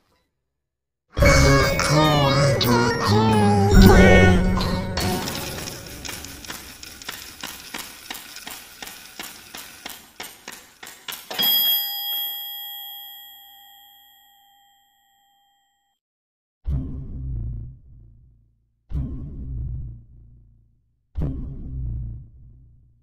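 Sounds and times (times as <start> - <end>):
clock ticking: 1.2 - 11.5
bright bell chime: 11.3 - 15.8.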